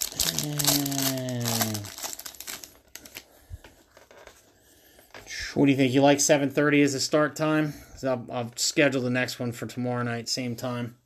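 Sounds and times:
foil pack crinkling and tearing: 0.0s - 3.3s
man humming: 0.1s - 2.0s.

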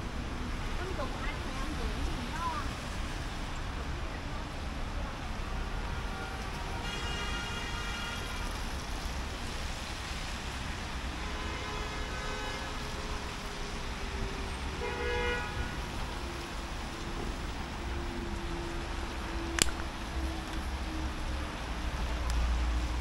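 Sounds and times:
street traffic: 0.0s - 23.0s
car horns: 6.8s - 8.3s, 14.7s - 16.0s.

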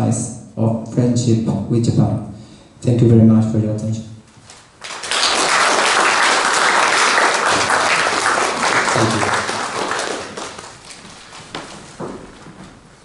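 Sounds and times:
audience applauding: 4.8s - 11.7s.

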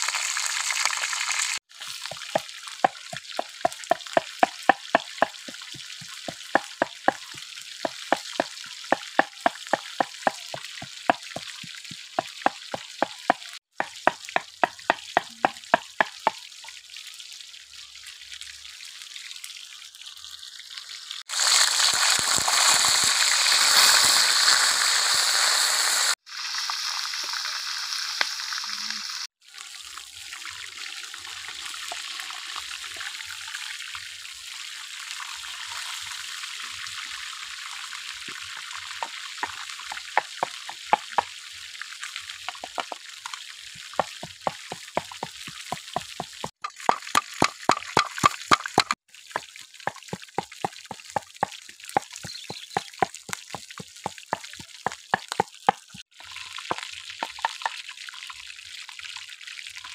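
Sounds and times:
fish frying in oil: 0.0s - 59.9s
pestle pounding in clay mortar: 2.0s - 16.4s, 39.4s - 41.3s, 42.5s - 43.0s, 44.0s - 56.0s, 56.7s - 57.8s.

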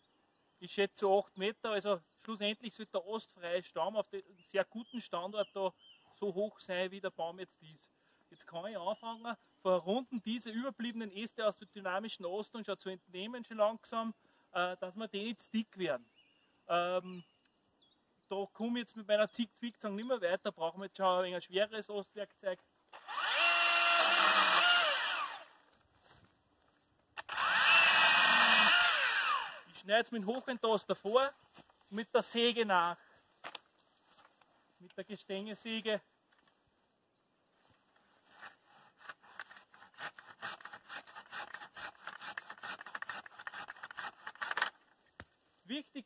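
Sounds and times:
pole pruner motor whining: 23.0s - 25.6s, 27.2s - 29.7s
pruning saw rasping through branch: 23.0s - 25.6s, 27.2s - 29.7s, 38.1s - 44.8s.

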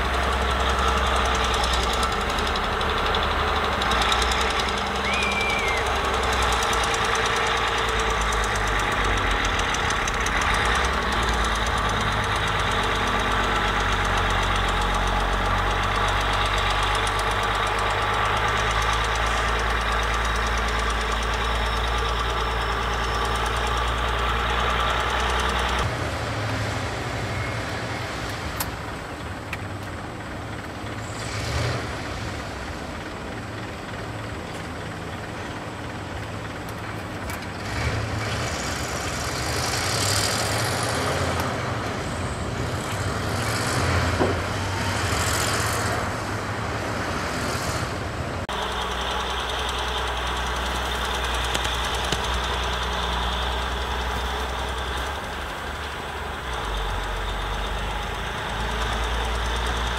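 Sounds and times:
bulldozer diesel engine clattering: 0.0s - 59.9s
distant dump truck engine: 0.0s - 59.9s.

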